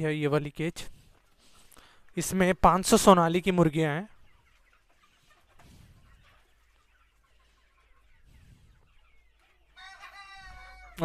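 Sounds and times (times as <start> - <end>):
chickens clucking: 0.0 - 11.0
drawn-out chicken call: 4.1 - 11.0.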